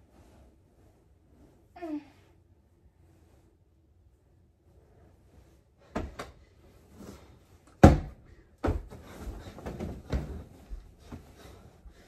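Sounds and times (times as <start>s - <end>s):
bedding rustling: 0.0s - 12.0s
dull thumps on bed: 7.8s - 10.5s.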